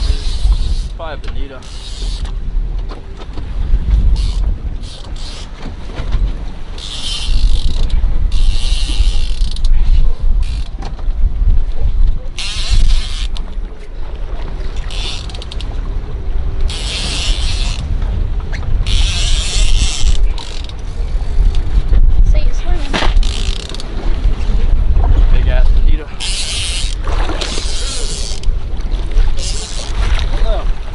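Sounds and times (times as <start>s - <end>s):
fishing reel whirring: 0.0s - 1.0s, 1.6s - 2.4s, 4.1s - 5.6s, 6.8s - 10.8s, 12.3s - 13.4s, 14.8s - 15.7s, 16.6s - 17.8s, 18.8s - 20.8s, 23.2s - 23.9s, 26.2s - 28.5s, 29.4s - 30.0s
water: 0.0s - 30.9s
wind: 0.0s - 30.9s.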